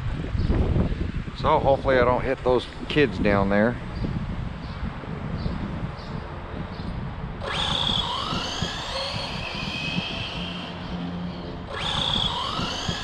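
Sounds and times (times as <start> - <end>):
electric motor whining: 5.6 - 13.0.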